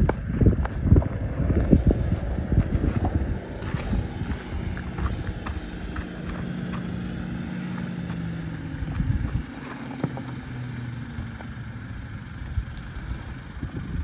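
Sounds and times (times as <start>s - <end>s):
wind buffeting microphone: 0.0s - 9.6s, 12.3s - 14.0s
vehicle engine running at low revs: 0.0s - 14.0s.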